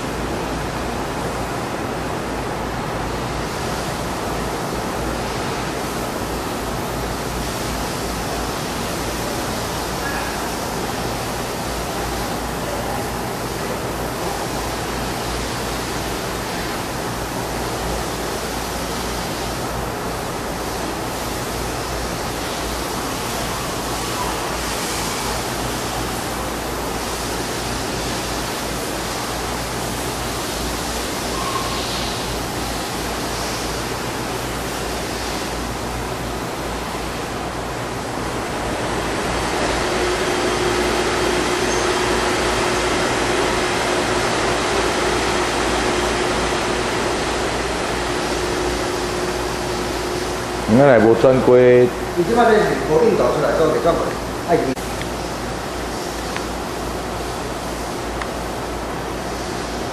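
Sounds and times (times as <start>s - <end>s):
machine hiss and hum: 0.0s - 59.9s
steady tone: 38.3s - 52.2s.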